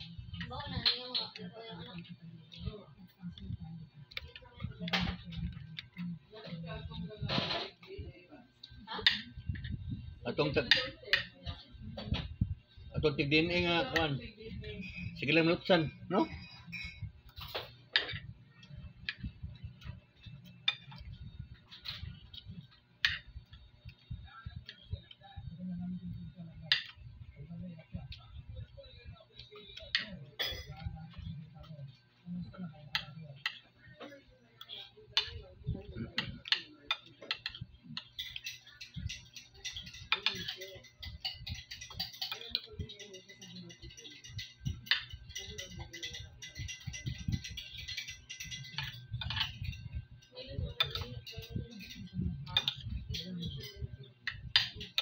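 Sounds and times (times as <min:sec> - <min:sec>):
cutlery clinking on ceramic plate: 0:30.0 - 0:30.9, 0:36.2 - 0:49.9, 0:50.8 - 0:55.0.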